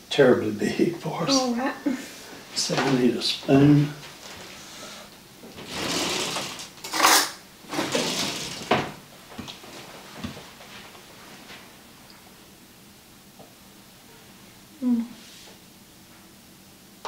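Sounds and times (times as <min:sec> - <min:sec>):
drawer sliding open and shut: 0:05.5 - 0:09.0
utensils clattering: 0:05.6 - 0:08.9.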